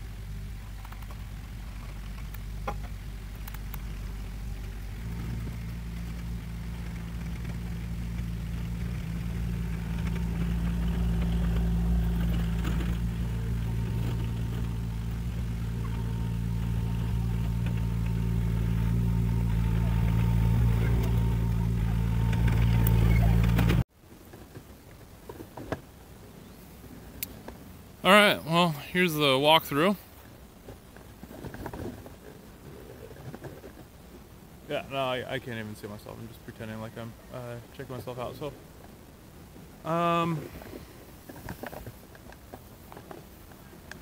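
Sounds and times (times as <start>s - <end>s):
excavator diesel engine running: 0.0s - 23.8s.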